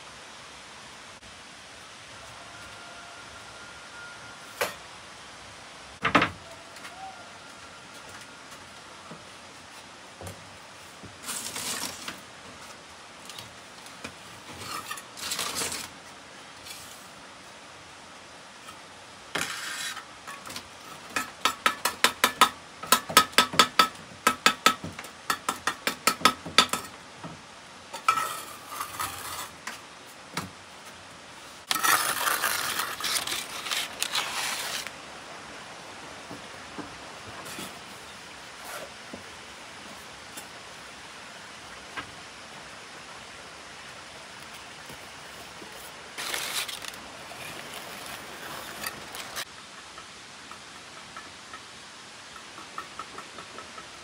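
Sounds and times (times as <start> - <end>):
metal scraping: 27.9 - 29.8, 31.6 - 34.9.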